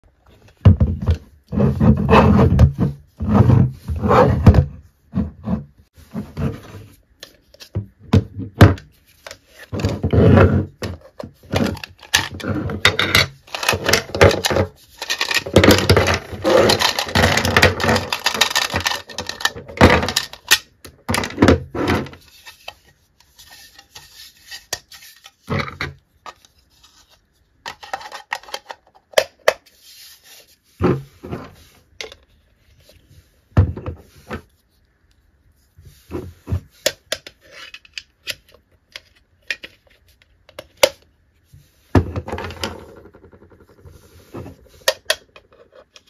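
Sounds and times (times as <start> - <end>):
plastic rubbing and clatter: 0.3 - 29.3, 35.9 - 46.0
plastic toy parts clicking and knocking: 10.8 - 26.4, 27.6 - 29.6, 42.0 - 46.0.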